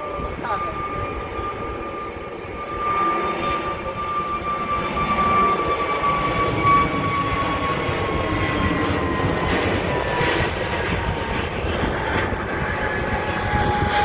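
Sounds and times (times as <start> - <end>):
jet engine whine: 0.0 - 14.0.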